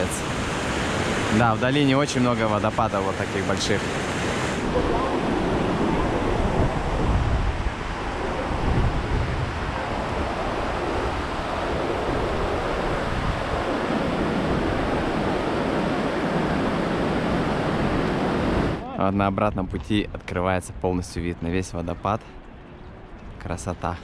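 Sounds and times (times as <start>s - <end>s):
rush of falling water: 0.0s - 18.8s
wind gusting on microphone: 0.0s - 21.2s.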